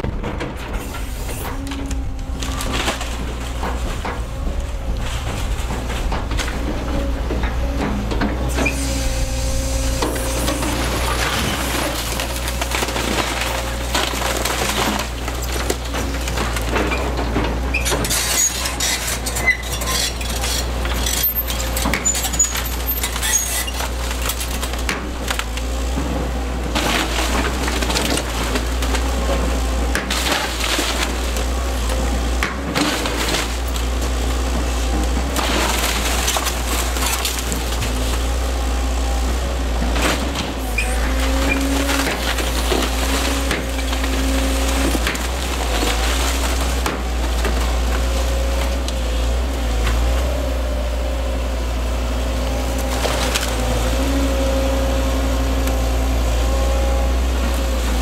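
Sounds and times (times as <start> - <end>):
wood splintering: 0.0 - 51.4
excavator diesel engine: 0.0 - 58.0
debris and glass crashing: 10.2 - 25.5, 35.4 - 38.3, 39.9 - 48.6.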